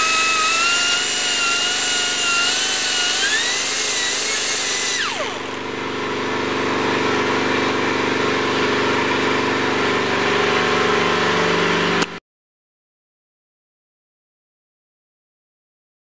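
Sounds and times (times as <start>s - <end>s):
air die grinder grinding plastic: 0.0s - 5.7s.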